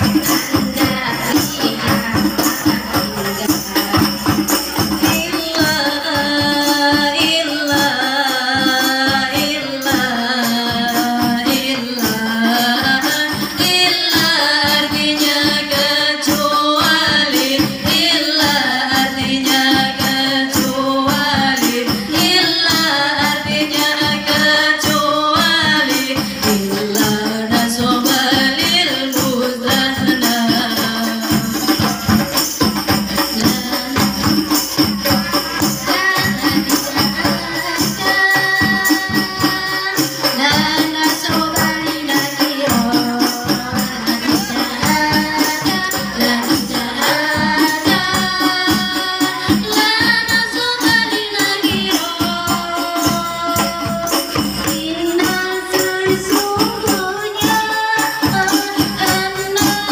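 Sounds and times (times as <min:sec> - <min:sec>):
women singing devotional song: 0:00.0 - 0:59.9.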